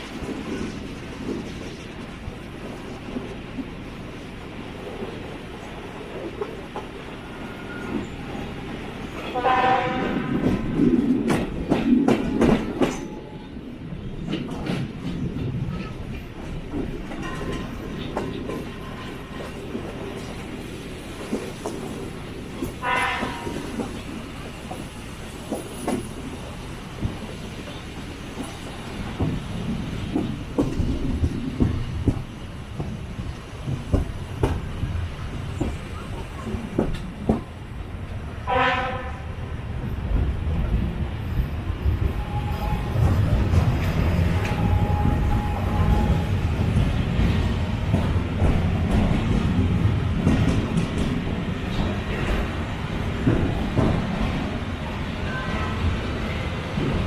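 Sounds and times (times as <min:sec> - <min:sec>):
steam train running: 0:00.0 - 0:57.0
train wheel clacks: 0:09.2 - 0:13.3, 0:14.2 - 0:37.5, 0:42.8 - 0:54.6
train whistle: 0:09.3 - 0:10.4, 0:22.8 - 0:23.7, 0:38.4 - 0:39.3, 0:42.1 - 0:43.1, 0:44.4 - 0:46.5.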